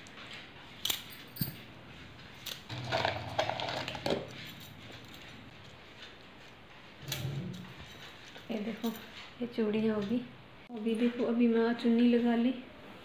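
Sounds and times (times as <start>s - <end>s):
bangles clinking: 0.8s - 1.8s.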